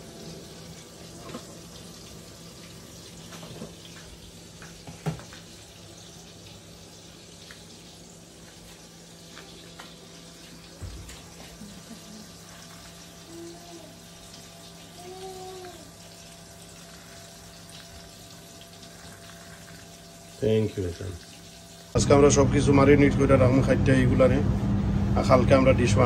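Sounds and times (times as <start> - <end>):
steady low hum: 21.2 - 26.0.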